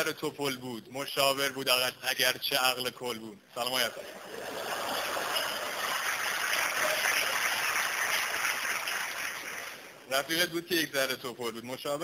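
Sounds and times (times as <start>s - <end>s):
audience applauding: 4.2s - 9.9s.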